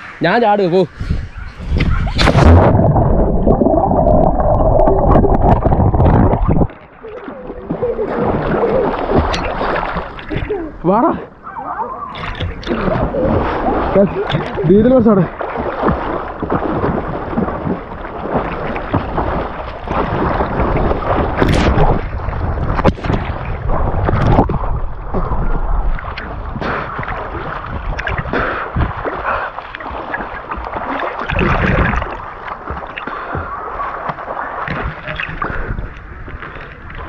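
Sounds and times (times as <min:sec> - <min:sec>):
water sloshing and splashing: 0:01.2 - 0:37.0
sharp splashes: 0:01.8 - 0:10.7, 0:12.1 - 0:37.0.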